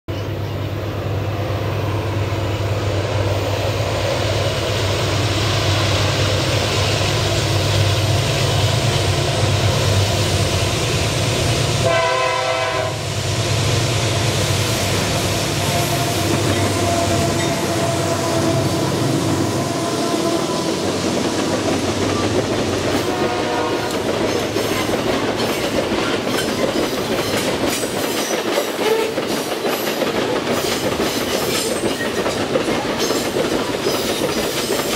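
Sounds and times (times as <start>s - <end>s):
diesel locomotive engine drone: 0.1s - 34.9s
train horn blast: 11.8s - 13.1s, 15.5s - 20.8s, 23.0s - 24.1s, 28.8s - 29.2s
train wheels clacking over rail joints: 19.6s - 34.9s.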